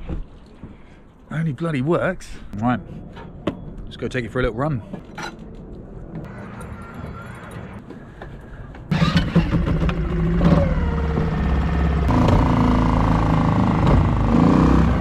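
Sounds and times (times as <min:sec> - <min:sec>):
outboard motor pull-start: 0:08.9 - 0:14.2
outboard motor running: 0:08.9 - 0:15.0.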